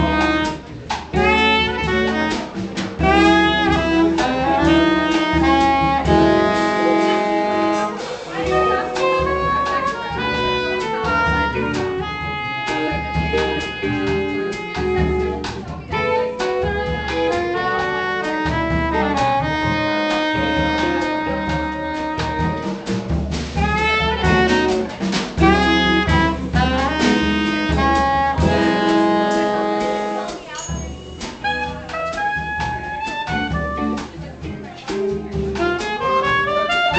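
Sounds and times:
soprano saxophone: 0:00.0 - 0:22.9, 0:23.6 - 0:34.4, 0:35.3 - 0:36.9
drum kit: 0:00.0 - 0:36.9
upright bass: 0:00.0 - 0:36.9.

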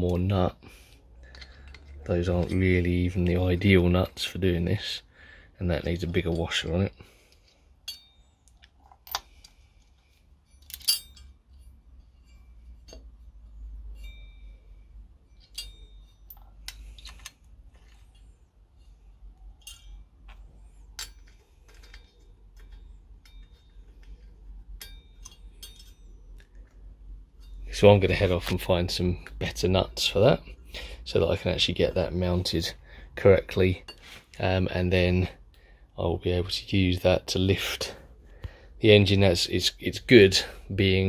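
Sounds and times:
metal nuts clinking on steel plate: 0:19.6 - 0:20.4, 0:24.8 - 0:26.2.

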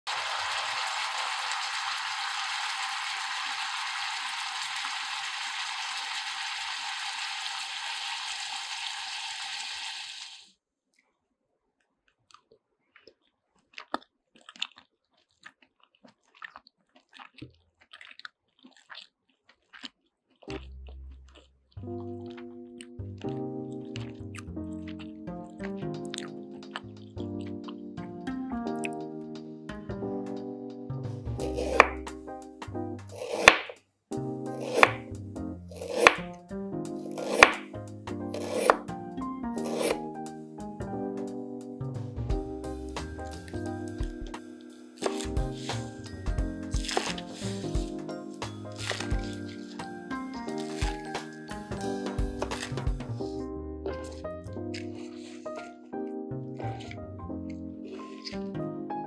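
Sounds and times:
person chewing and crunching food: 0:10.9 - 0:29.6, 0:31.4 - 0:32.4, 0:33.0 - 0:33.8, 0:34.5 - 0:40.8, 0:42.6 - 0:53.3, 0:53.9 - 0:58.6
mouth clicks: 0:12.3 - 0:22.5
knife slicing ginger: 0:31.4 - 0:32.1, 0:33.1 - 0:33.8, 0:34.6 - 0:35.1, 0:35.7 - 0:36.2, 0:37.0 - 0:37.7, 0:38.3 - 0:38.9, 0:39.6 - 0:40.0, 0:45.0 - 0:47.7, 0:48.4 - 0:49.9, 0:50.5 - 0:53.0.

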